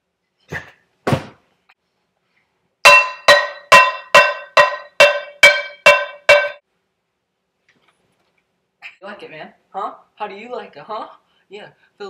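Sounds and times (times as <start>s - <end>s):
metal pan clanging: 2.8s - 6.6s.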